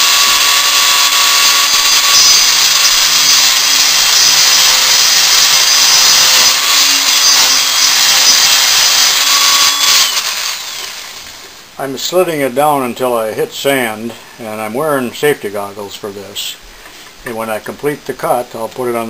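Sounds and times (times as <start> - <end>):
rotary tool grinding whine: 0.0 - 11.5.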